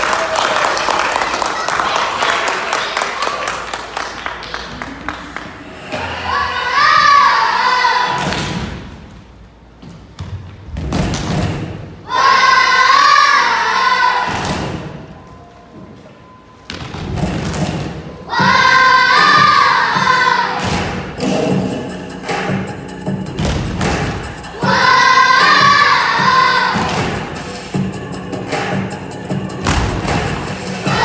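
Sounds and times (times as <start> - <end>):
clapping: 0.0 - 5.5
children singing: 5.9 - 8.2, 18.3 - 20.6, 24.4 - 27.5, 30.6 - 31.0
thumping beat: 21.2 - 31.0.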